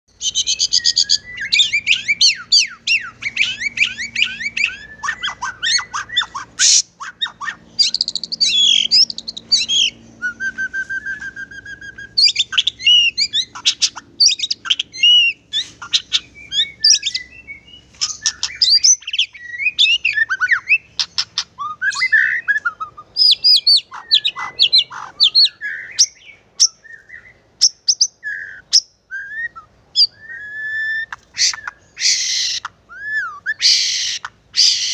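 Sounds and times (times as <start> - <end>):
songbird singing: 0.1 - 34.9.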